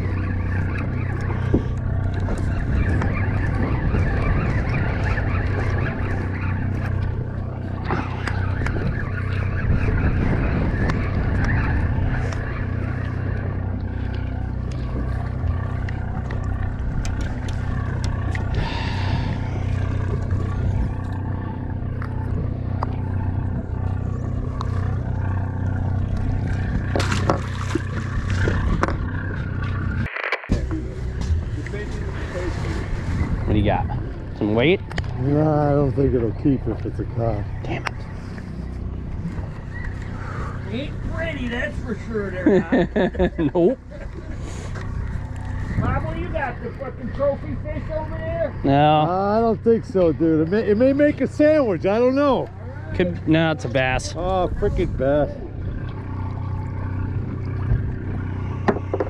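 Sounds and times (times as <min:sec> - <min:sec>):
boat engine droning: 0:00.0 - 0:59.0.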